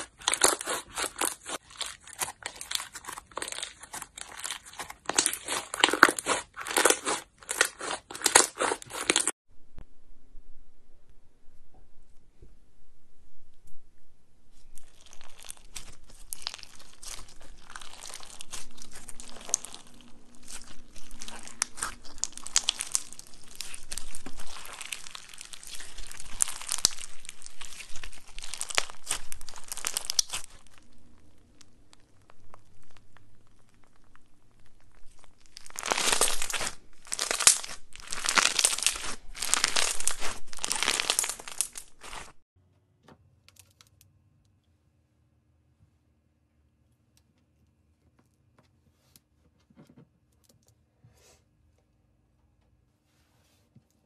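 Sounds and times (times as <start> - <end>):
slime crackling and popping: 0.0 - 9.3, 14.7 - 42.4
slime squeezes: 0.0 - 9.3, 14.8 - 42.4.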